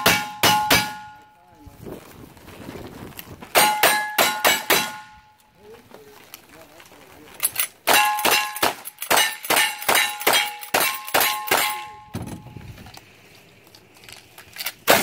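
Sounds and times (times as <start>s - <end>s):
rifle shots: 3.6s - 5.1s
steel target ringing: 7.9s - 12.4s.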